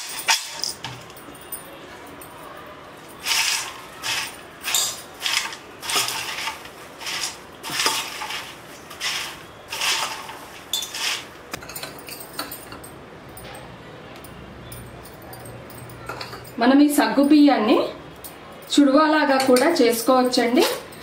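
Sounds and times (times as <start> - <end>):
metal spoon scraping steel bowl: 3.2 - 11.8.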